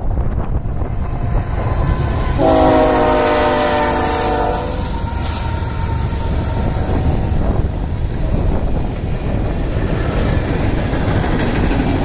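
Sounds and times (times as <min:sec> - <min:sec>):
freight train rumbling past: 0:00.0 - 0:12.0
locomotive air horn chord: 0:01.6 - 0:05.5.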